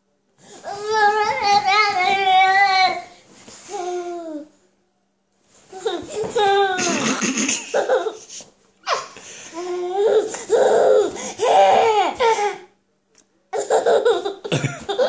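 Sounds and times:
baby laughing: 5.8 - 9.0, 13.6 - 15.0.

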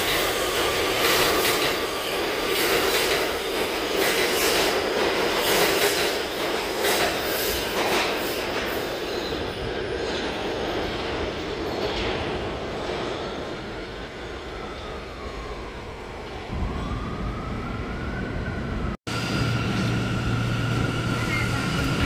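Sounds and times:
subway train wheels clacking: 0.0 - 14.1, 19.1 - 22.0.

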